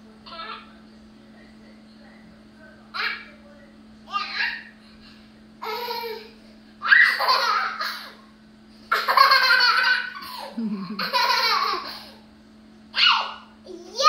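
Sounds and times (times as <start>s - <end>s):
toddler girl laughing: 5.6s - 8.2s, 8.9s - 12.2s.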